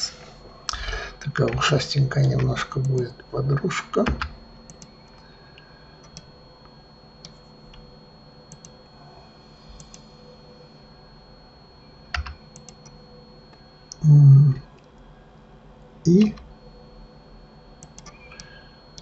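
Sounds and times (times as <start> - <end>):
faint electrical hum: 0.0 - 19.0
keyboard keys clicking: 12.1 - 12.8.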